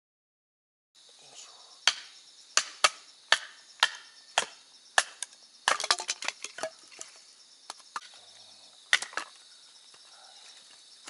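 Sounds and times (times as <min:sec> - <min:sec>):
faint crickets chirping: 0:01.0 - 0:11.0
firewood being chopped: 0:01.8 - 0:07.1, 0:08.9 - 0:09.4
wood cracking and clattering: 0:05.7 - 0:07.2.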